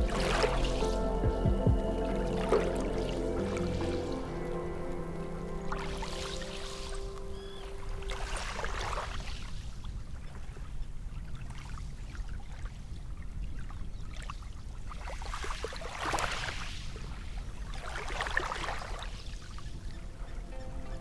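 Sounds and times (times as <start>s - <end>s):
small waves lapping at shore: 0.0s - 1.2s, 2.2s - 21.0s
low steady rumble: 0.0s - 8.7s.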